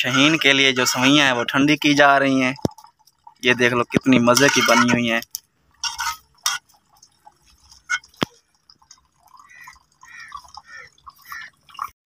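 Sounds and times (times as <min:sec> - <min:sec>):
liquid dripping and plopping: 0:00.0 - 0:12.0
spoon clinking on metal bowl: 0:04.3 - 0:05.1, 0:05.8 - 0:06.7.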